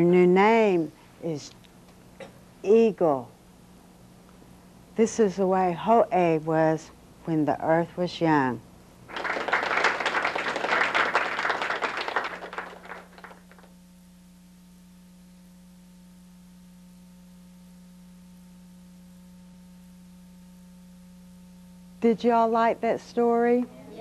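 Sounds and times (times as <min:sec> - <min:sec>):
faint electrical hum: 0:00.0 - 0:24.0
children applauding: 0:09.1 - 0:13.7.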